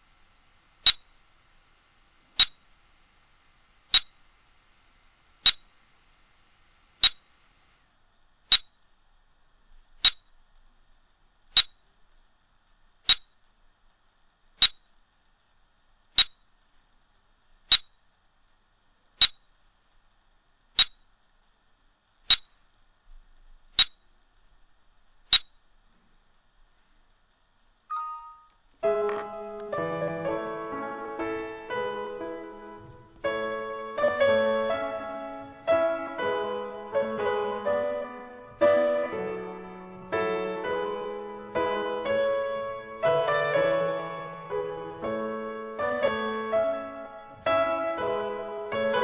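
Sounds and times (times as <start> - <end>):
brief chime: 27.9 - 28.5
short high electronic beeps: 27.9 - 28.5
piano music: 27.9 - 49.0.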